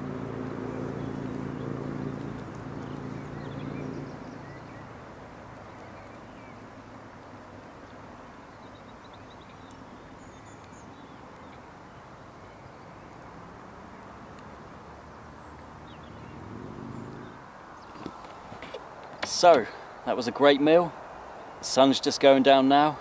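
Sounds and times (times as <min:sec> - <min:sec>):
low multi-pitch hum: 0:00.0 - 0:04.9.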